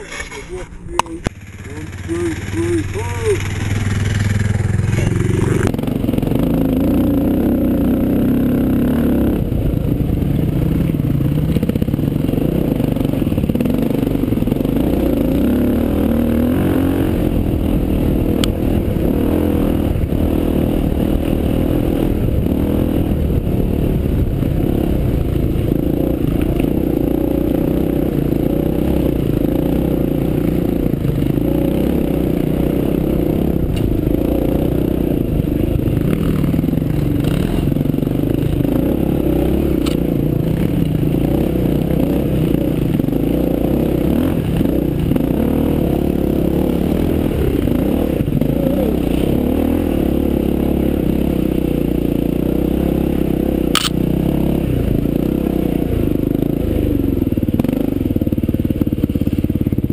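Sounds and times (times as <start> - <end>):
motorbike engine revving: 0.0 - 59.9.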